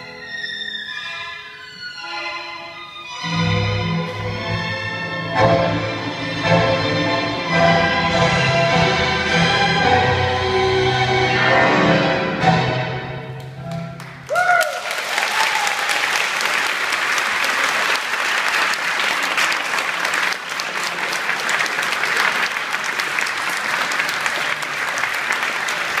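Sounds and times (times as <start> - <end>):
tango music: 0.0 - 14.3
audience applauding: 13.4 - 26.0.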